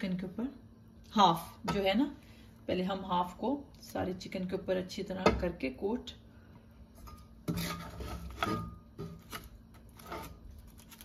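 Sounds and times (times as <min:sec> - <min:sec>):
spatula scraping in a wok: 0:07.0 - 0:10.5.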